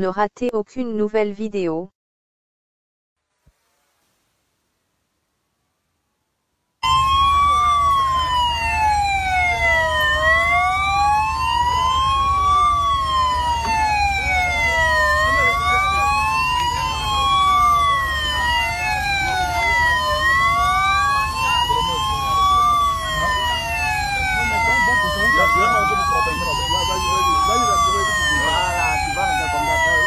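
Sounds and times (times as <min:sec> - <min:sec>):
police sirens wailing: 0:06.8 - 0:30.0.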